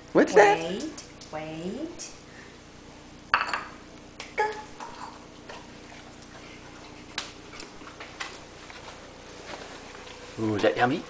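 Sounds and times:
bowl clinking on tiled floor: 3.3s - 3.8s
dog eating from bowl: 4.8s - 10.2s.

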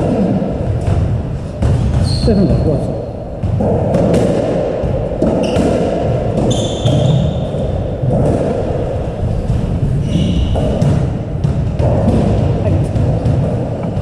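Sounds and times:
squash ball knocks: 0.0s - 2.6s, 3.3s - 14.0s
shoes squeaking on wooden floor: 1.8s - 2.8s, 6.4s - 11.1s.

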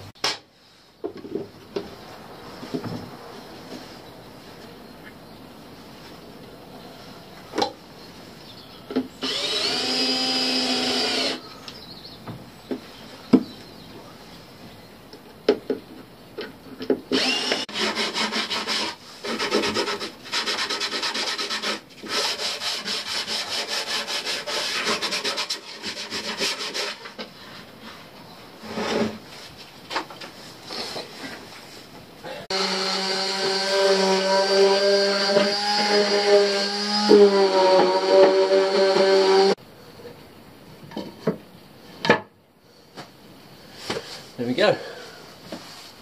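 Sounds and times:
cordless drill running: 9.2s - 11.4s, 17.2s - 17.6s
handsaw cutting plywood: 17.1s - 27.2s, 32.5s - 39.6s.

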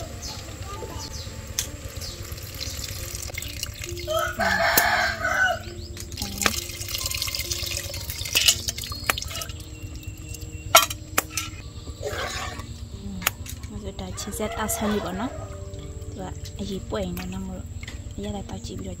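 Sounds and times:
liquid pouring and splashing: 1.7s - 5.3s, 5.9s - 11.0s
rooster crowing: 4.0s - 5.8s, 14.0s - 15.9s.

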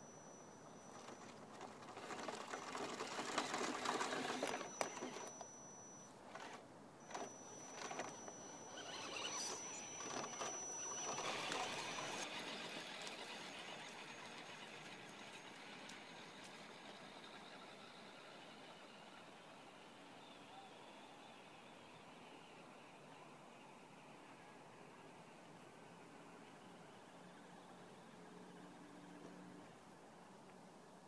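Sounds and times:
electric motor whine: 0.0s - 21.0s.

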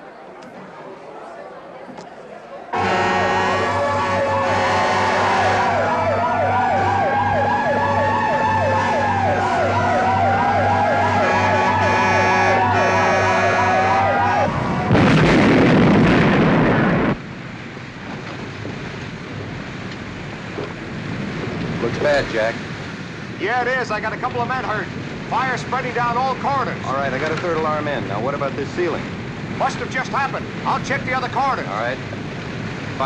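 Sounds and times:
fire engine siren yelping: 2.7s - 15.2s
fire engine siren wailing: 2.7s - 17.2s
low pulsing engine drone: 2.7s - 18.6s
loud rushing blast: 2.8s - 17.3s.

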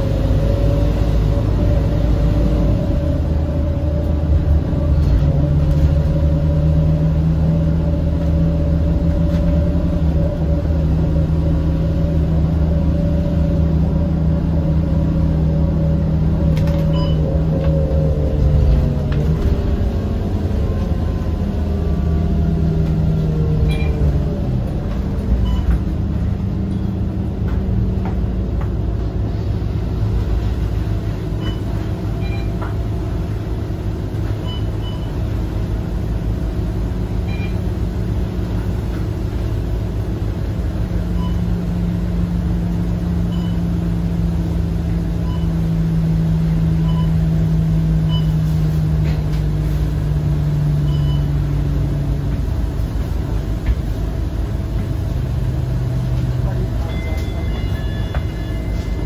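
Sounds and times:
bus diesel engine: 0.0s - 59.0s
faint short high beeps: 56.8s - 59.0s.

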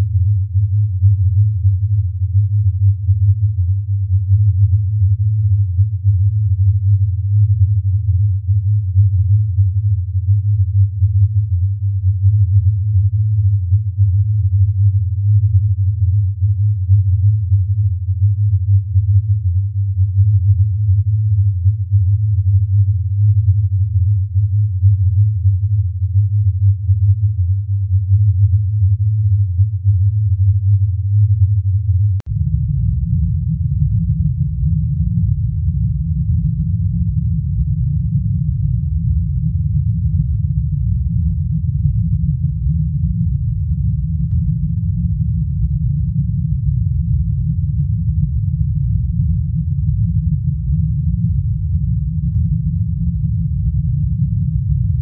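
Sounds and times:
deep fluttering synthesized drone: 32.2s - 55.0s.

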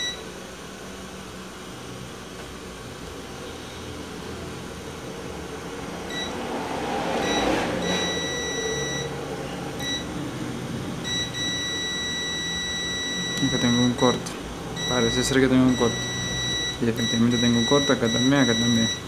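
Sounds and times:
multimeter continuity beeps: 0.0s - 0.3s, 6.1s - 6.4s, 7.2s - 9.2s, 9.8s - 10.1s, 11.0s - 19.0s.

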